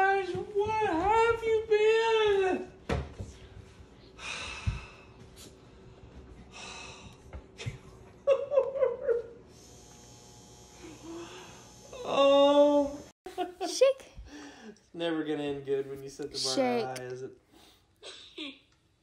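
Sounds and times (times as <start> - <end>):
man breathing heavily: 4.1 - 7.3.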